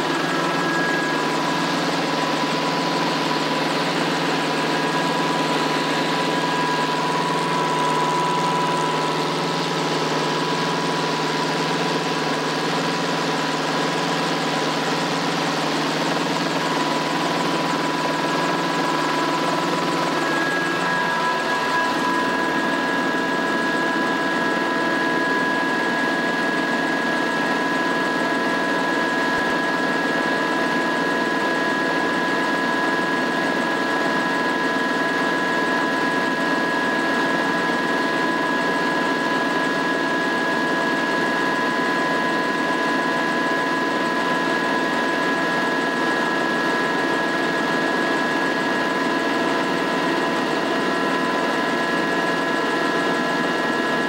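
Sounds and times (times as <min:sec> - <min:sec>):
high whining tones: 0:00.0 - 0:24.9
helicopter engine and rotor: 0:00.0 - 0:54.0.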